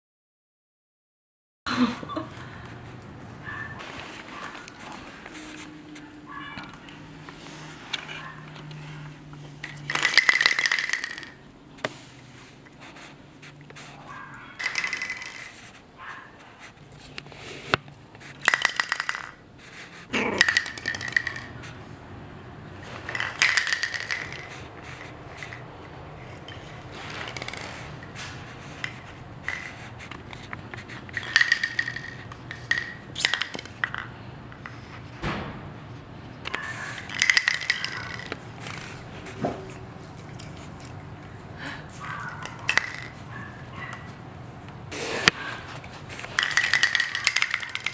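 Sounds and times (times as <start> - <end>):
plastic toy pins clattering on floor: 9.6 - 11.4, 14.6 - 15.6, 18.3 - 19.4, 20.2 - 21.7, 22.8 - 25.6, 26.2 - 28.1, 28.7 - 34.1, 36.5 - 39.0, 42.2 - 43.2, 46.1 - 47.9.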